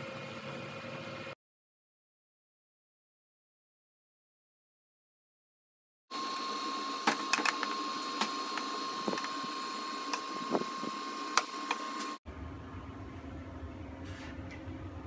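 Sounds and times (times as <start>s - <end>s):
steady high whine: 6.1s - 13.9s
low hum: 12.2s - 15.0s.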